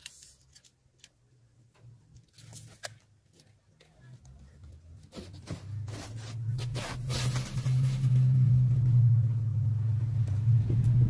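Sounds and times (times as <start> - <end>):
vehicle engine rumble: 4.3 - 11.0.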